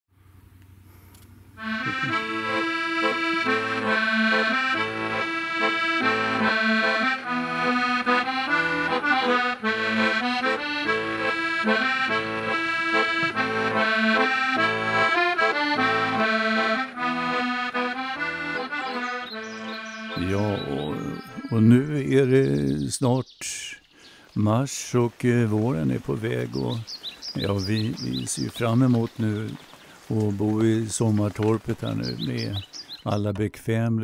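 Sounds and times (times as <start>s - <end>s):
accordion playing a tune: 1.5s - 22.5s, 24.8s - 32.7s.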